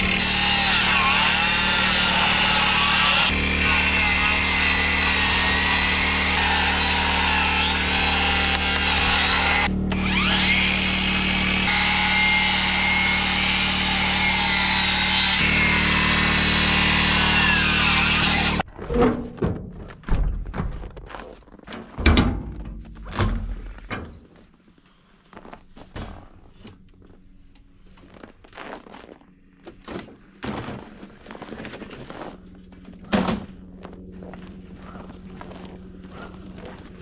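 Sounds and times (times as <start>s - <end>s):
circular saw cutting boards: 0.0s - 18.6s.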